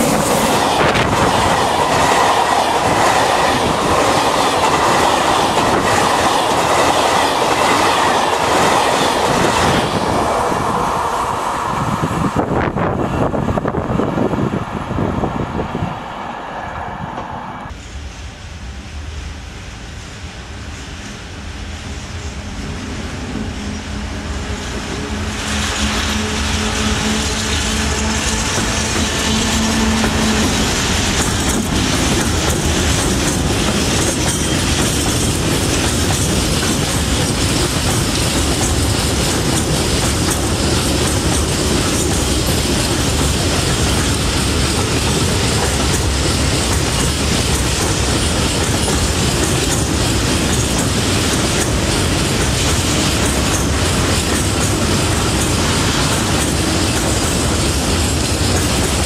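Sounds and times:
electric locomotive humming: 0.0 - 59.0
freight train rolling by: 0.0 - 59.0
wheels clacking over rail joints: 25.0 - 59.0.

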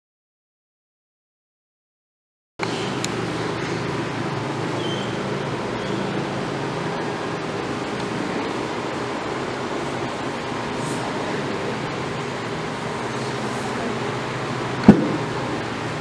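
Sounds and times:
classroom background noise: 2.6 - 16.0.

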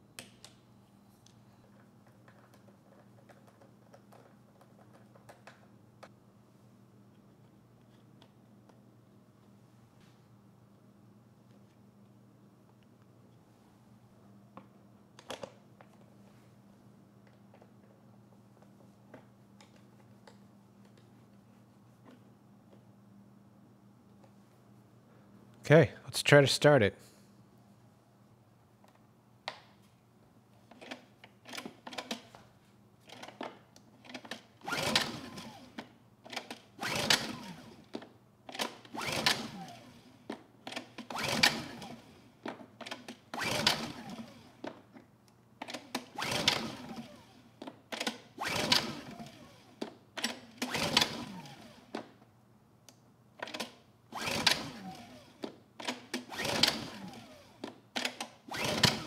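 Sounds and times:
generator pull-start: 34.1 - 37.8, 38.5 - 39.9, 40.6 - 42.1, 42.8 - 44.5, 45.6 - 47.4, 48.0 - 52.0, 53.4 - 59.0.

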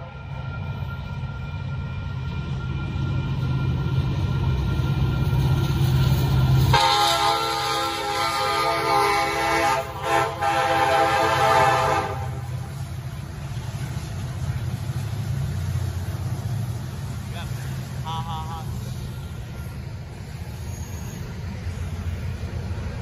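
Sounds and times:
locomotives rumbling past: 0.0 - 23.0
locomotive air horn: 6.7 - 12.8.

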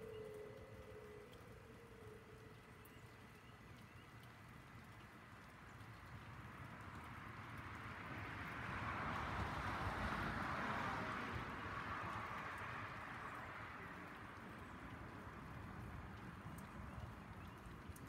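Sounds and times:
vehicle tyre noise passing: 7.0 - 16.6.

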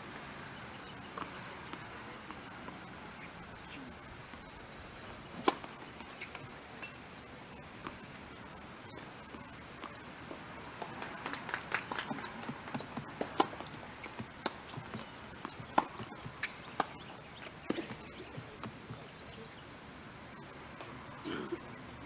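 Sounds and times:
steady hiss: 0.0 - 22.0
tennis balls struck and bouncing: 5.2 - 7.0, 8.9 - 19.1
footsteps on hard court: 9.3 - 19.2.

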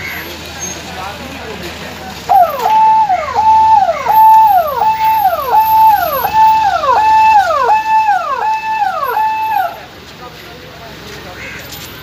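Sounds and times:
ambulance siren: 2.3 - 9.9.

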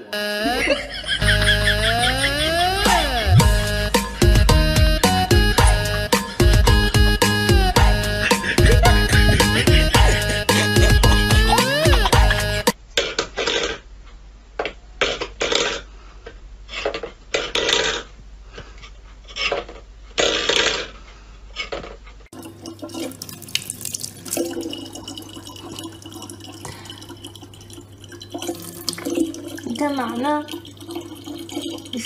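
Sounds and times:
tap water running into bottle: 22.3 - 32.0.

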